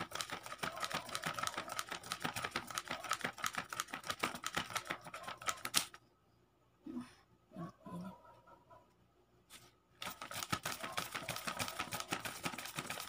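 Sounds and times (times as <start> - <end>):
banknotes flapping: 0.0 - 6.0, 10.0 - 13.0.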